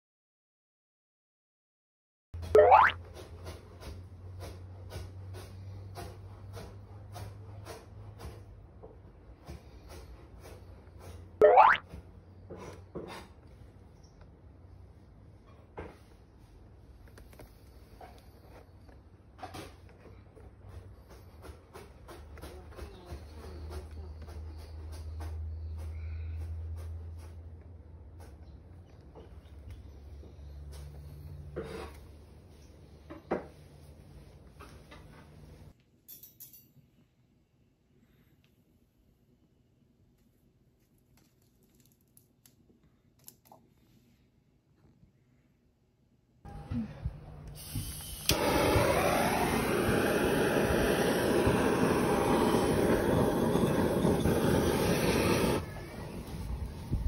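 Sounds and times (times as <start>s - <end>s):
blowtorch igniter click: 47.5s - 55.6s
blowtorch flame hissing: 47.6s - 57.0s.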